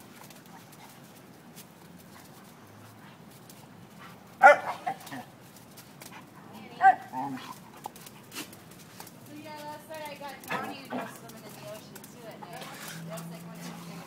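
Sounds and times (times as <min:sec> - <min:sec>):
dog barking: 0:04.4 - 0:05.2
dog yipping: 0:04.4 - 0:05.2.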